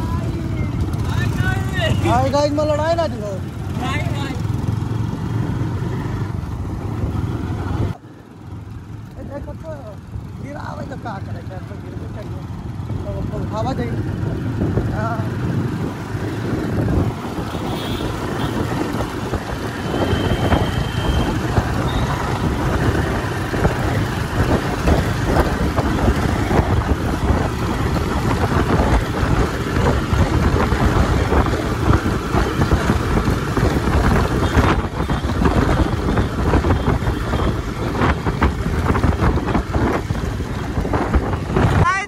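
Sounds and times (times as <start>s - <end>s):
motorcycle engine running: 0.0s - 41.7s
wind buffeting microphone: 14.0s - 42.0s.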